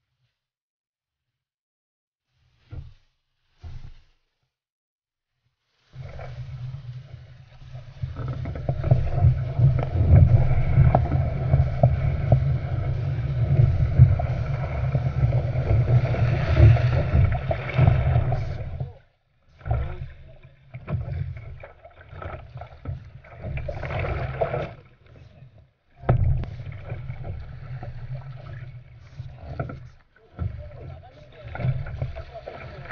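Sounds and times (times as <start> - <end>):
water rushing against boat bow: 5.7 - 32.9.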